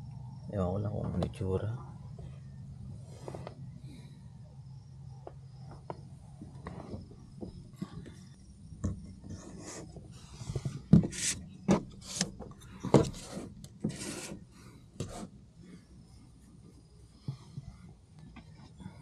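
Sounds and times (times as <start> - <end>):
short rubbing and scraping: 9.2 - 15.4.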